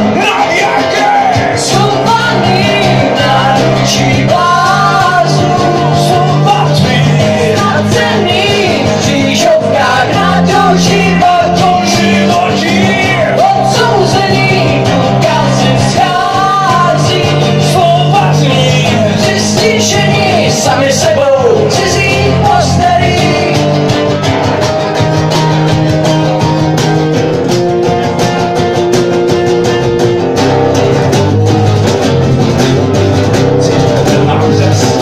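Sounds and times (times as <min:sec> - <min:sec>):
person singing: 0:00.0 - 0:24.8, 0:33.4 - 0:35.0
live rock band playing: 0:00.0 - 0:35.0.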